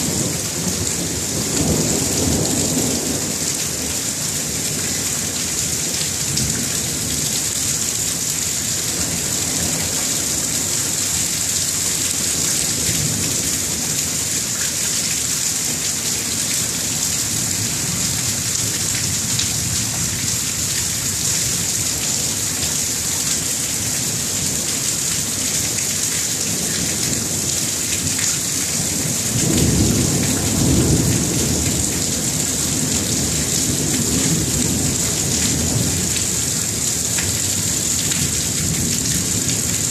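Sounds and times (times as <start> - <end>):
thunder rumbling: 29.0 - 35.0.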